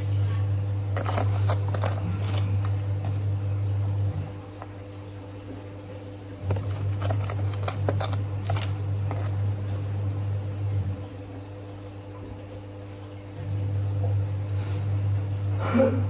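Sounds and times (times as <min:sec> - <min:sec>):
coffee bag crinkling: 0:00.9 - 0:03.3, 0:06.4 - 0:09.5
wooden spoon scraping coffee: 0:01.0 - 0:03.3, 0:06.4 - 0:09.4.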